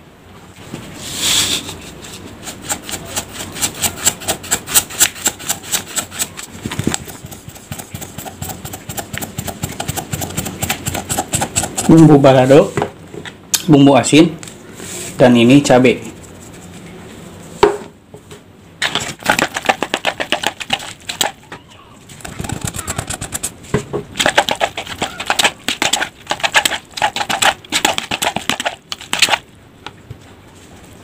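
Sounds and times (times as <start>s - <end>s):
metal spoon scraping plastic tub: 1.0s - 12.2s, 18.8s - 21.4s, 22.2s - 23.5s, 24.2s - 29.4s.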